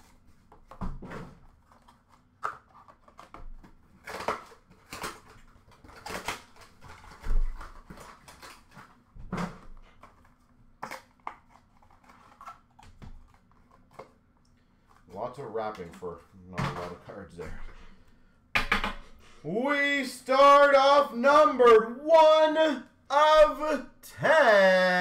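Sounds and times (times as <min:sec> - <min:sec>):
plastic wrapping crinkling: 0:01.5 - 0:09.1.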